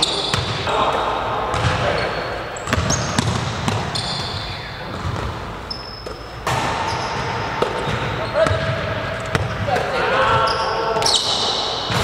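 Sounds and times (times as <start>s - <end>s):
basketball bouncing: 0.3s - 0.7s, 1.5s - 2.0s, 2.6s - 5.4s, 6.0s - 9.8s.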